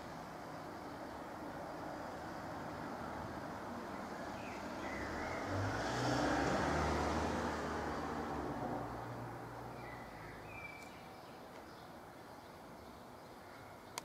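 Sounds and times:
passing vehicle engine hum: 1.3s - 10.6s.

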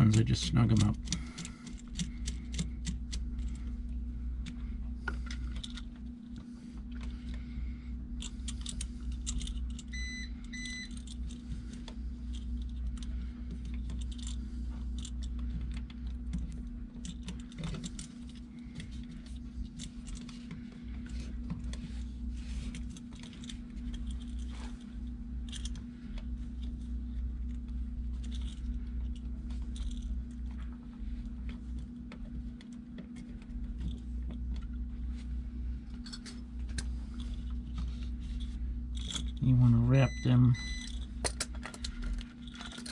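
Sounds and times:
steady low hum: 0.0s - 42.9s.

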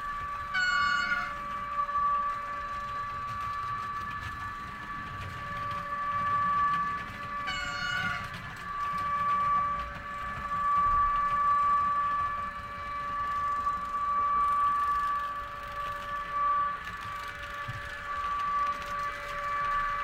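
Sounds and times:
model train motor whine: 0.0s - 20.0s
wheels rumbling on track: 0.0s - 20.0s
short train horn toot: 0.5s - 2.6s.

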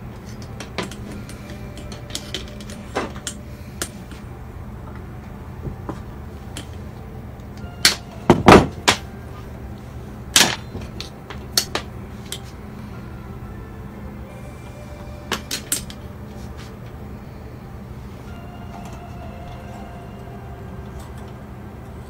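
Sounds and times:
steady low hum: 0.0s - 22.0s
clicks and knocks of tools: 0.2s - 4.2s, 10.4s - 12.6s.

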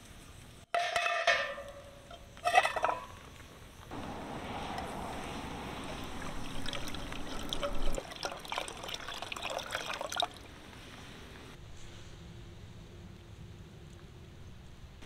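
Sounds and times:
small water splashes: 3.9s - 11.2s
water pouring and trickling: 3.9s - 11.5s.

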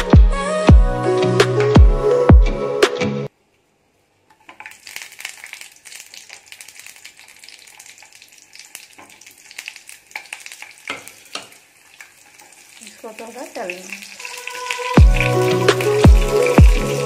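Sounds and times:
onion sizzling in hot oil: 4.3s - 17.0s.

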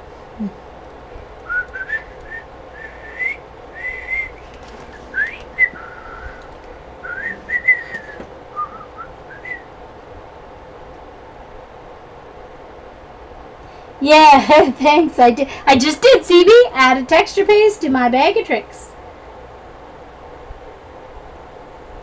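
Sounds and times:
person whistling a tune: 1.4s - 4.4s, 5.1s - 6.4s, 7.0s - 9.6s.

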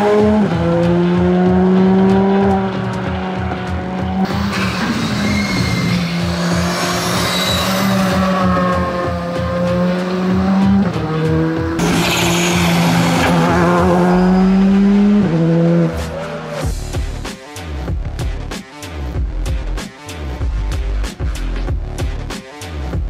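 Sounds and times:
rally car engine revving high: 0.0s - 17.0s.

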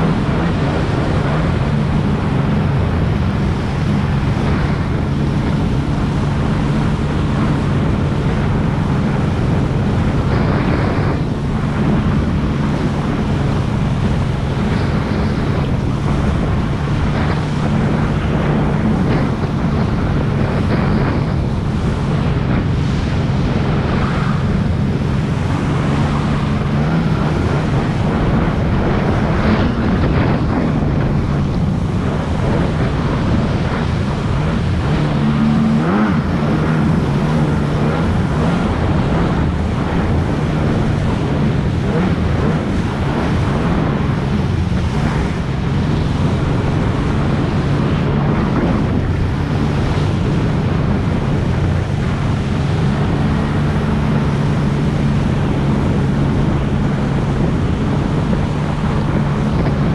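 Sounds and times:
watercraft engine running: 0.0s - 59.9s
wind buffeting microphone: 0.0s - 59.9s.

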